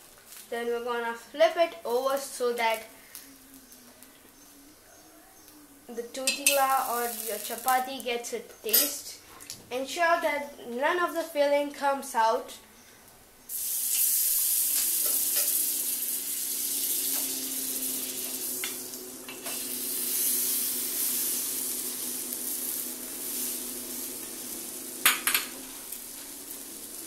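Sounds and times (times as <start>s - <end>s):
butter sizzling on a pan: 0.0s - 4.4s, 5.9s - 8.1s, 13.5s - 27.0s.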